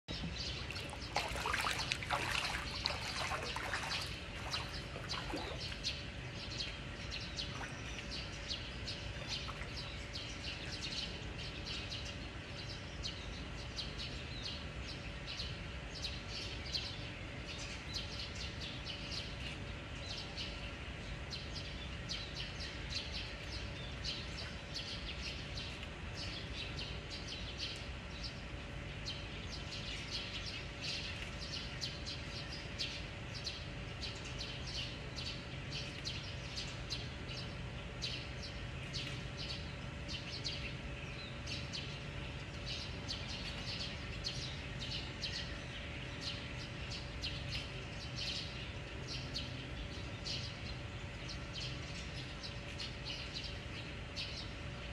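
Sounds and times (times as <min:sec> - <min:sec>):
birds chirping: 0:00.1 - 0:11.4
low background rumble: 0:00.1 - 0:11.8.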